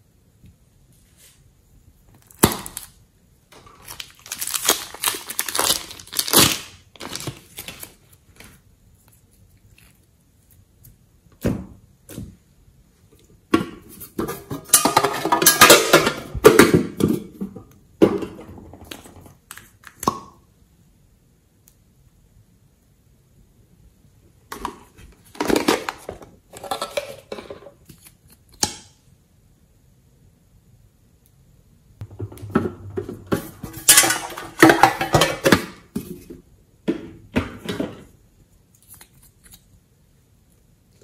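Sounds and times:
plastic piping bag crinkling: 0:02.1 - 0:03.0, 0:03.6 - 0:10.9.

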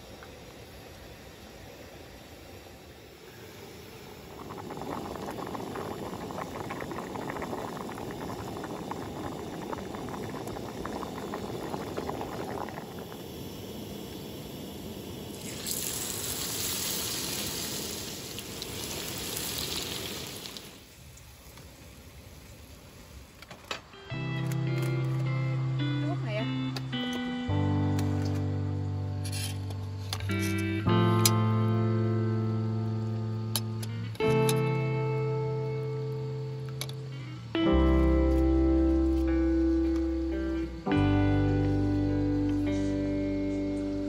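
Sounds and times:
food bubbling and boiling: 0:00.0 - 0:23.4
loud sizzle: 0:00.0 - 0:44.0.

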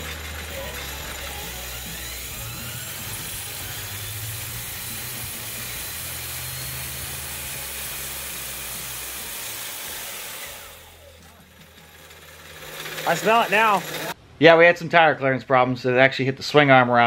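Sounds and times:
faint rising motor whine: 0:00.0 - 0:09.4
spinning tire rushing hiss: 0:12.1 - 0:14.2.

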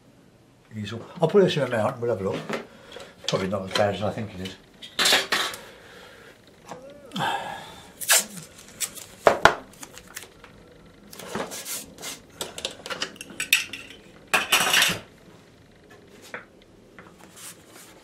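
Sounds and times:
paper rustling: 0:08.2 - 0:10.4.

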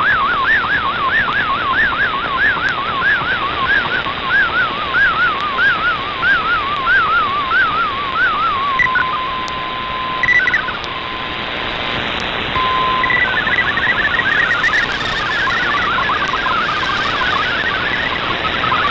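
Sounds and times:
radio receiver hiss: 0:08.7 - 0:18.9
short high beeps: 0:08.8 - 0:09.1, 0:10.2 - 0:10.8, 0:12.6 - 0:18.8
warbling tone: 0:10.2 - 0:10.8, 0:12.6 - 0:18.9
steady tone: 0:12.6 - 0:18.9
chatter of fast-hopping tones: 0:13.1 - 0:18.9.

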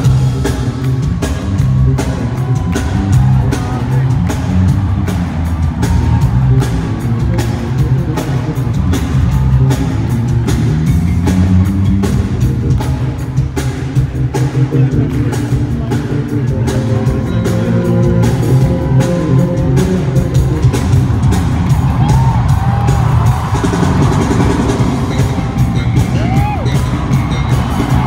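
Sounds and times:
electric bass: 0:00.0 - 0:28.0
rapid drum hits: 0:20.6 - 0:28.0.

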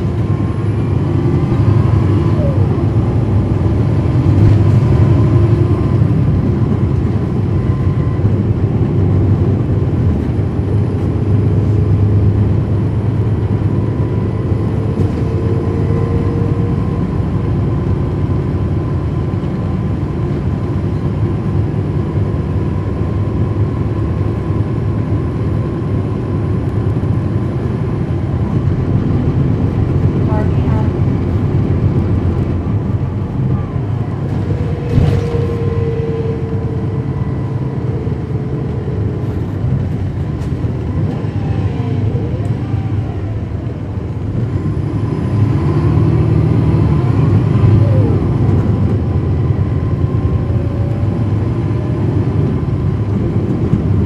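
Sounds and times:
bus diesel engine drone: 0:00.0 - 0:54.0
faint rising whine: 0:31.1 - 0:45.6.

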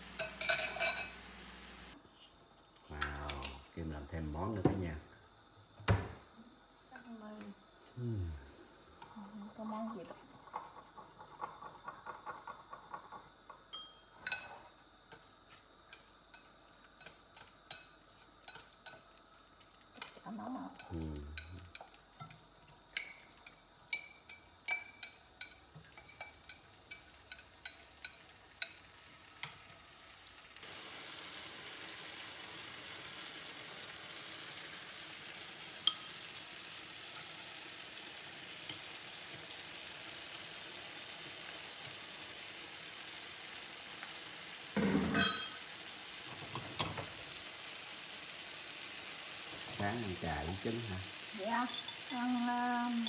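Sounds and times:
tomatoes sizzling in pan: 0:00.0 - 0:53.0
chopsticks clicking on bowl and pan: 0:15.9 - 0:28.8, 0:35.8 - 0:36.1.

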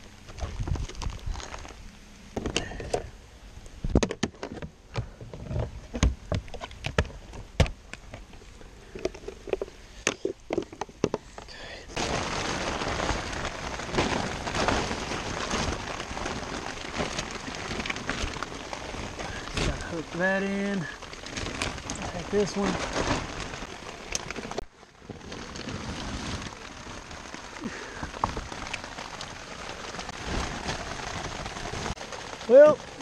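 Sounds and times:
rain hissing: 0:11.2 - 0:33.0
tarp knocking and clattering: 0:12.0 - 0:33.0.

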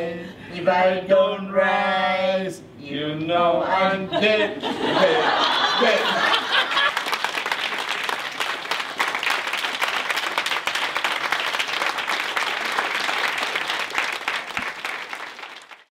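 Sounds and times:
audience applauding: 0:05.8 - 0:15.9.

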